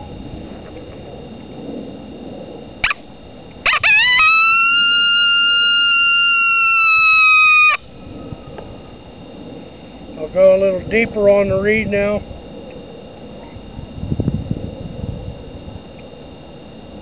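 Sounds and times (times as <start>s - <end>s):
reed howler call: 2.7s - 10.0s.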